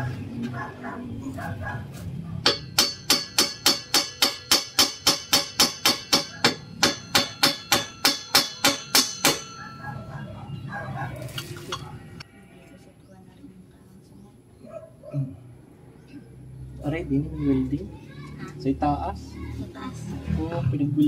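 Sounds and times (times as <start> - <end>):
hammer striking metal pipe: 2.4 - 9.7.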